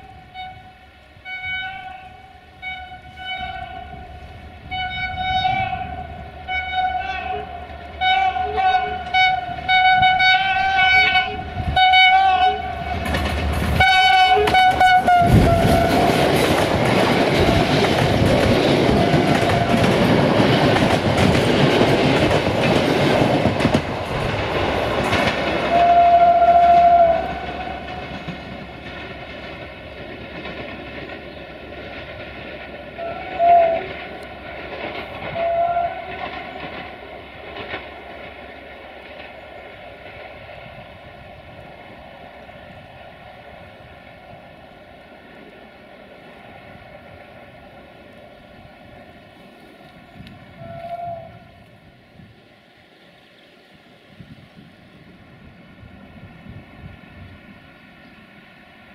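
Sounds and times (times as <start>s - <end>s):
locomotive horn toots and blasts: 0.0s - 13.1s, 13.7s - 16.4s, 25.6s - 28.0s, 33.0s - 34.0s, 35.2s - 36.3s, 50.6s - 51.7s
train rumble and wheel clatter: 0.0s - 58.9s.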